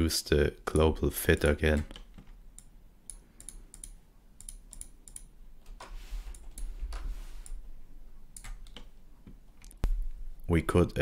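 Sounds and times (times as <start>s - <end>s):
keyboard and mouse clicks: 0.7s - 7.6s, 8.3s - 10.0s.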